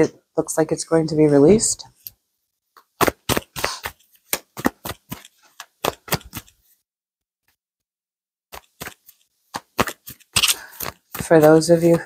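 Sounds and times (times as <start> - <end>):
cards shuffling and snapping: 2.8 - 6.6, 8.5 - 12.0.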